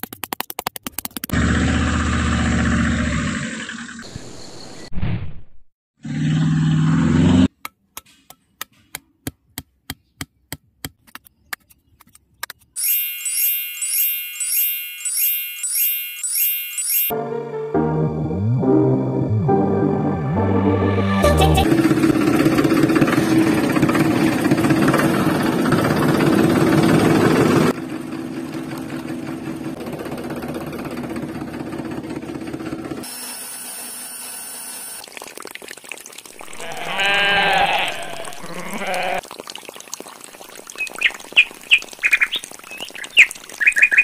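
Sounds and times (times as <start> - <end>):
high bird chirps: 12.8 - 17.1, 40.8 - 44.0
small motors humming: 32.9 - 35.0
bleating: 36.4 - 39.2.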